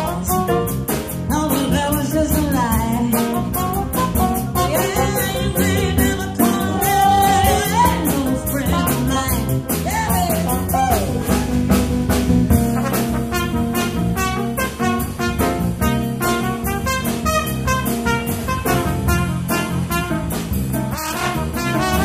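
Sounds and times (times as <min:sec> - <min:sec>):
woman singing: 0:00.0 - 0:00.7, 0:01.3 - 0:03.8, 0:04.6 - 0:11.2
drum kit beat: 0:00.0 - 0:22.0
trumpet: 0:03.5 - 0:05.4, 0:12.6 - 0:22.0.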